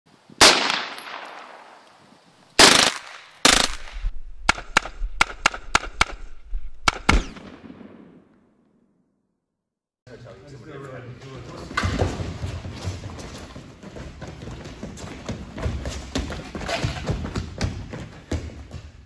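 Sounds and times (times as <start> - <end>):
gunshots with echo: 2.6 - 8.6.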